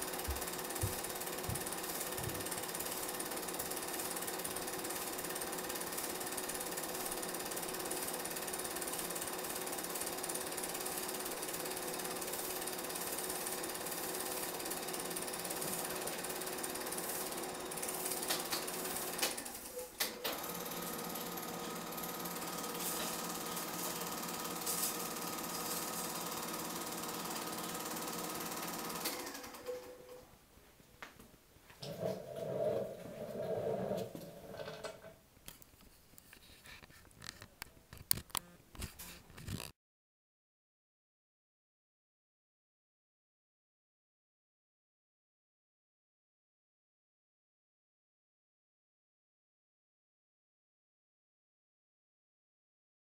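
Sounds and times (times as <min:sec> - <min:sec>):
film projector clatter and whir: 0:00.0 - 0:30.2.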